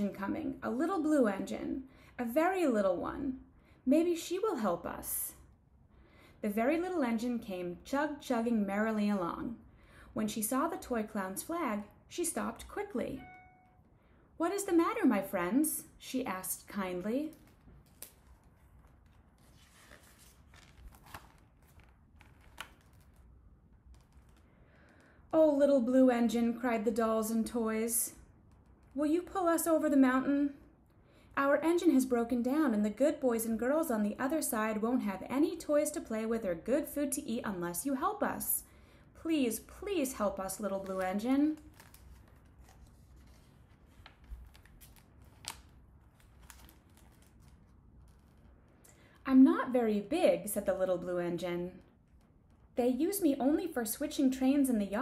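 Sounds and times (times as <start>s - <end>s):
paper rustling: 17.1s - 25.2s, 40.5s - 49.2s
book page turning: 17.2s - 25.1s, 40.5s - 49.2s.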